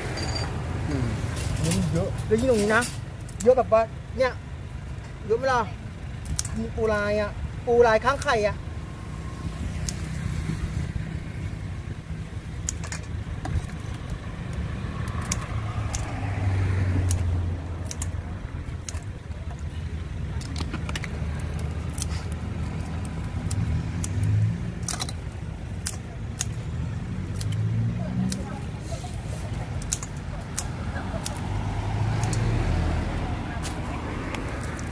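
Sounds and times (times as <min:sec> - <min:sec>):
scissors snipping crab shell: 0:06.2 - 0:06.6, 0:09.8 - 0:10.1, 0:12.6 - 0:16.3, 0:17.0 - 0:19.6, 0:20.4 - 0:28.8, 0:29.7 - 0:32.6, 0:33.2 - 0:34.9.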